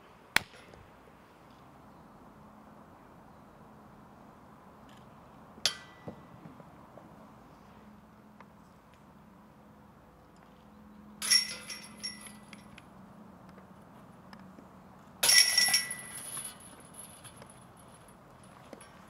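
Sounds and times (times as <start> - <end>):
disc hitting metal chains: 11.2 - 12.7, 15.2 - 18.0
chain rattle jingling: 11.2 - 12.8, 15.2 - 19.0.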